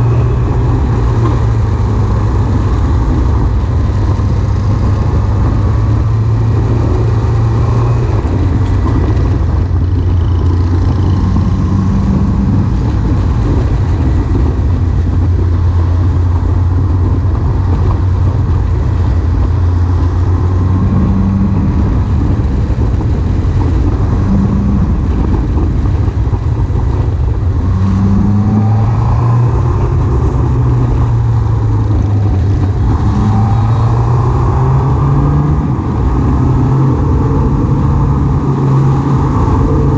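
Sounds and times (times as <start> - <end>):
motorbike engine running: 0.0 - 28.8
road and traffic noise: 0.0 - 39.9.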